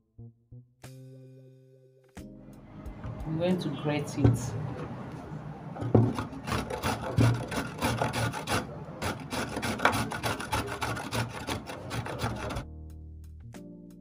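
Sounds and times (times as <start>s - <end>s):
carrot rasping on a grater: 5.8s - 12.6s
grater knocking on wooden board: 5.8s - 12.6s.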